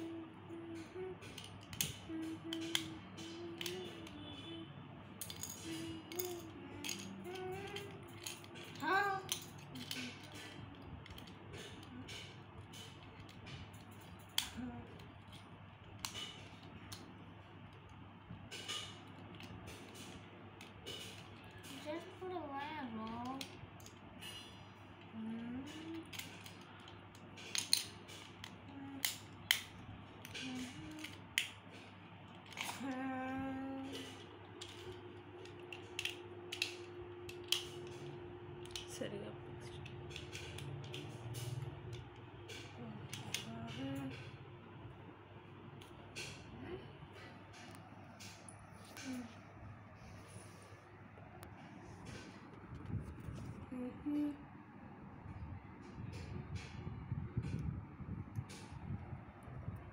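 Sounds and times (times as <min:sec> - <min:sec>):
faint humming: 0:00.0 - 0:59.9
toy car pieces clicking into place: 0:01.2 - 0:04.5, 0:05.2 - 0:17.2, 0:23.0 - 0:24.4, 0:25.7 - 0:33.0, 0:33.9 - 0:39.0, 0:39.6 - 0:44.3.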